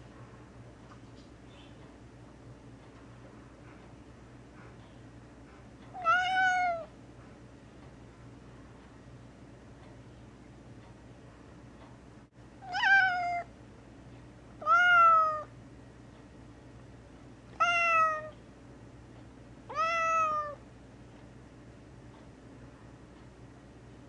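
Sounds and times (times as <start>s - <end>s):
cat meowing: 6.0s - 6.9s, 12.6s - 13.5s, 14.6s - 15.5s, 17.6s - 18.4s, 19.7s - 20.6s.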